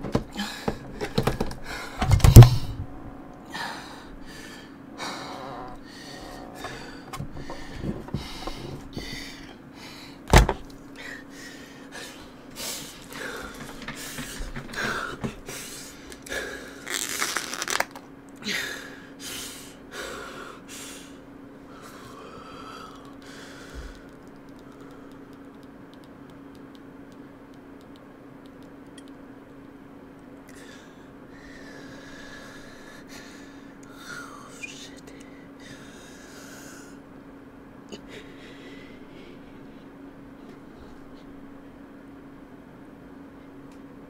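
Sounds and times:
steady low hum: 0.0 - 44.0
loud thump: 2.0 - 2.9.

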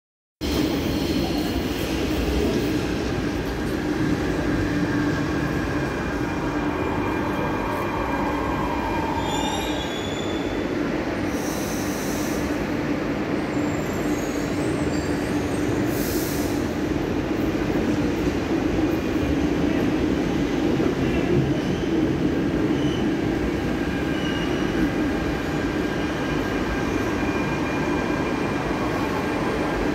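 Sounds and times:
train running hum: 0.4 - 29.9
short hisses of air: 15.9 - 16.6.

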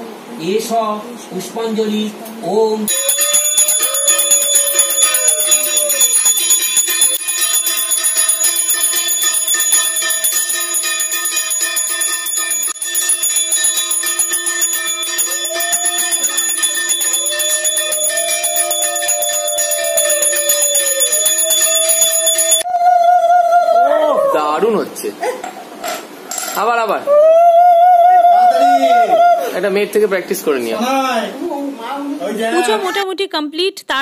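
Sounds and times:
hand bell ringing rapidly: 2.9 - 22.7.

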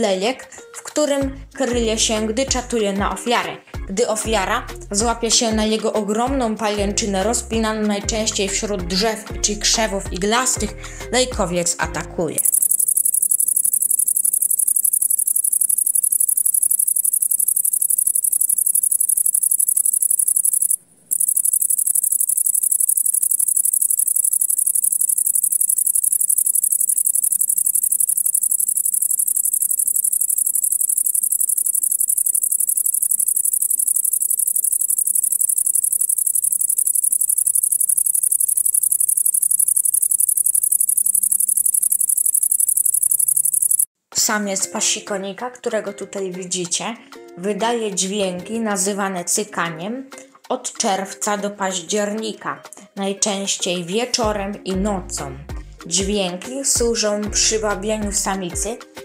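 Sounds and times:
bush-cricket high-pitched buzz: 12.4 - 43.9.

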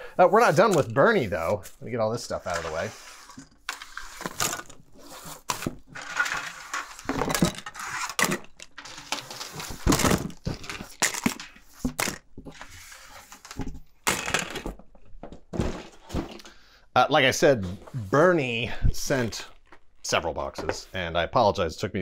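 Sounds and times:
plastic toys clattering: 2.3 - 16.5
packaging rustling: 2.4 - 13.5.

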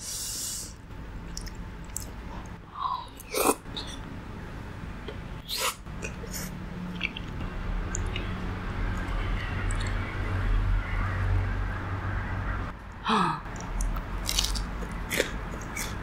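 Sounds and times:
crunchy bites and chewing: 13.5 - 16.0.

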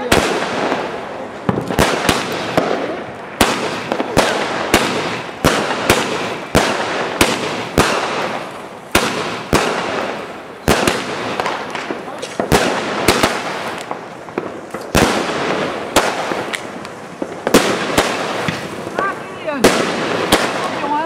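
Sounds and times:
fireworks banging: 0.0 - 21.0
fireworks crackling: 0.0 - 21.0.

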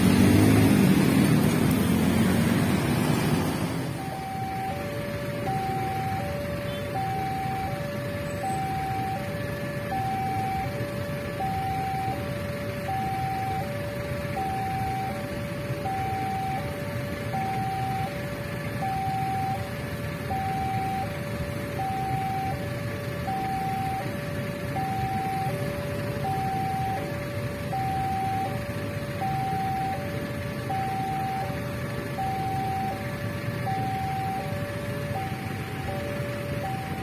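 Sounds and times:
low traffic rumble: 0.0 - 37.0
level crossing two-tone alarm: 3.8 - 37.0.

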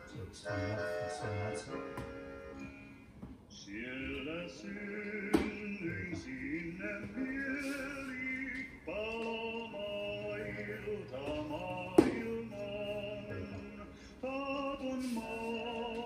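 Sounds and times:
man singing: 0.0 - 2.2, 3.5 - 16.0
backing music: 0.0 - 16.0
sharp knock: 12.0 - 12.2.

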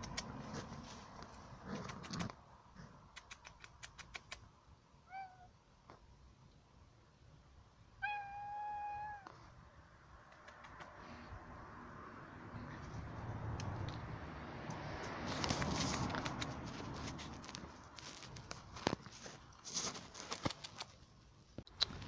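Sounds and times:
sharp clicks: 3.1 - 4.5, 10.3 - 11.0, 15.4 - 16.6
cat meowing: 5.1 - 5.5, 8.0 - 9.3.

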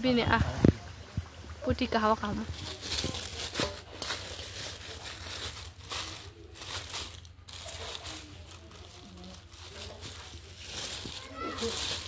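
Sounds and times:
plastic bag crinkling: 2.4 - 12.0.

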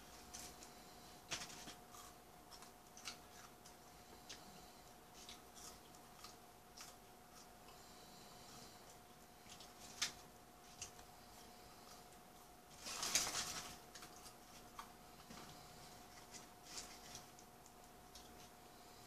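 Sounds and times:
faint steady hum: 0.0 - 19.0
paper crinkling: 1.3 - 3.7, 12.7 - 14.9, 16.1 - 18.6.

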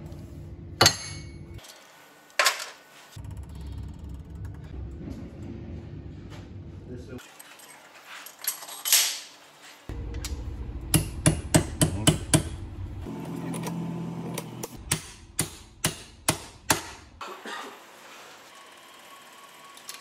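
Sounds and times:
hammer striking steel: 0.8 - 1.5, 10.9 - 12.6, 14.8 - 17.1
low hum: 9.9 - 11.6.

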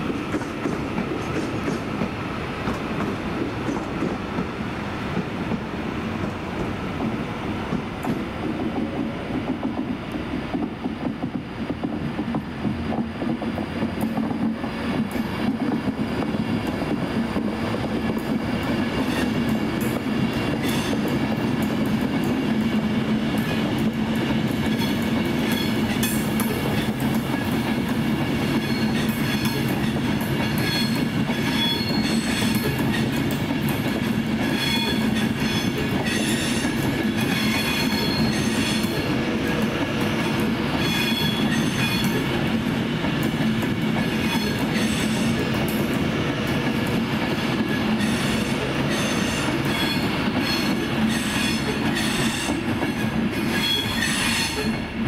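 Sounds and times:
high wheel squeals: 30.6 - 32.6, 37.2 - 38.9.

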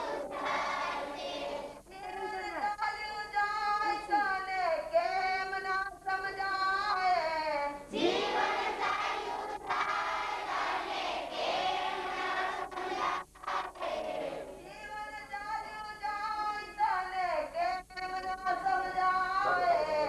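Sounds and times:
group singing a hymn: 0.0 - 1.8, 7.9 - 14.7.

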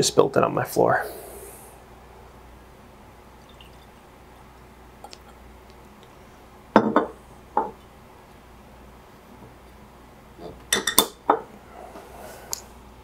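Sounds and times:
glass bottle knocking on table: 6.8 - 7.8.

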